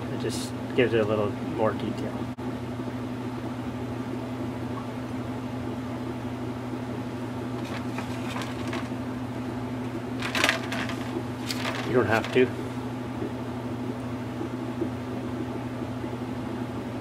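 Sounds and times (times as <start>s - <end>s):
low machine hum: 0.0s - 17.0s
short rustling: 7.6s - 9.0s, 10.2s - 12.6s.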